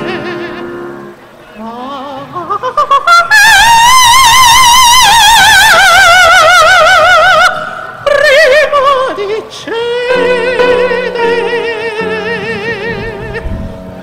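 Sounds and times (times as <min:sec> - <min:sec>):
operatic soprano singing: 0:00.0 - 0:13.7
piano accompaniment: 0:10.1 - 0:14.0.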